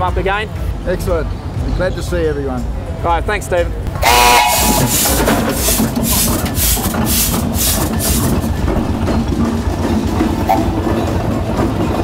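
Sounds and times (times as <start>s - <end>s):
steam engine exhaust chuffing: 4.0s - 12.0s
low mechanical rumble: 4.6s - 12.0s.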